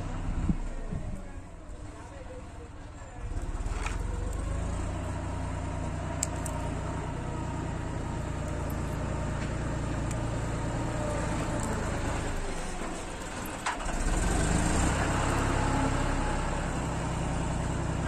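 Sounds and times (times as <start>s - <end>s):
wire-stripping pliers clicking: 6.2s - 6.7s, 11.4s - 12.4s.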